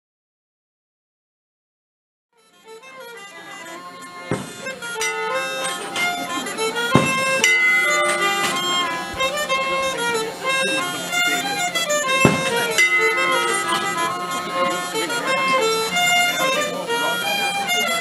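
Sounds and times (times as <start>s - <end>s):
fiddle and smallpipes folk tune: 2.4s - 18.0s
sharp knocks: 4.3s - 6.3s, 6.9s - 9.3s, 12.2s - 14.7s.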